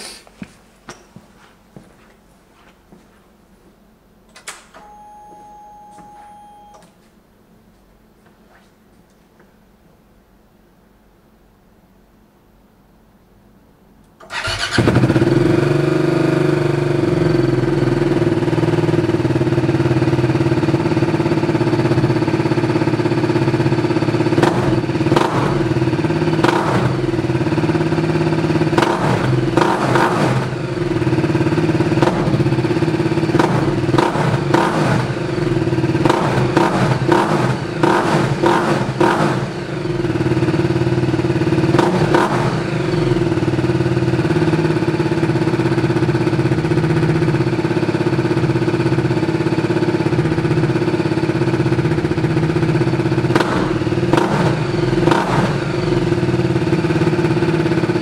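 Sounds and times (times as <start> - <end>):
motorcycle engine idling: 14.3 - 58.0.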